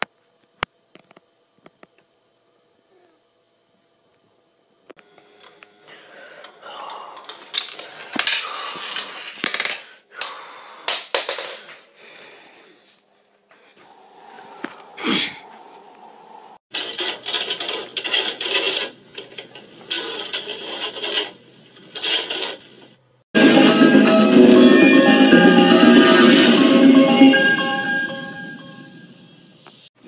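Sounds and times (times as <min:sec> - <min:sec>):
marble rolling and clattering: 0:07.4 - 0:09.9.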